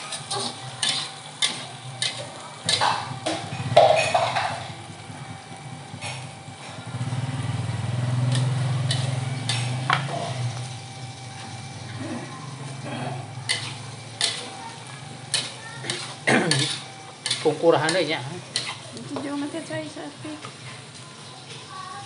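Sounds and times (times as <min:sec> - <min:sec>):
metal spatula scraping a pan: 0:00.0 - 0:04.6, 0:08.2 - 0:10.6, 0:12.7 - 0:19.3.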